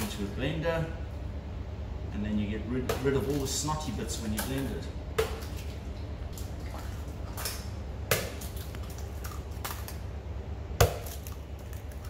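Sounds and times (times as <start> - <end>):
low steady hum: 0.0 - 12.0
eggs cracking: 4.4 - 12.0.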